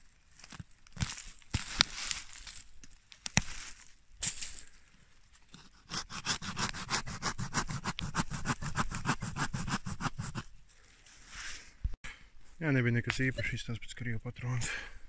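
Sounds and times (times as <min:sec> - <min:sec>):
hand saw rasping through root: 0:05.5 - 0:10.5.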